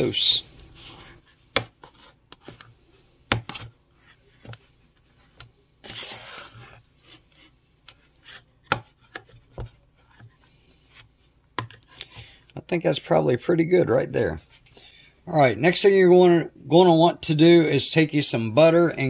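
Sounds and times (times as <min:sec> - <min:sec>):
fork scraping dough in bowl: 0:00.1 - 0:12.4.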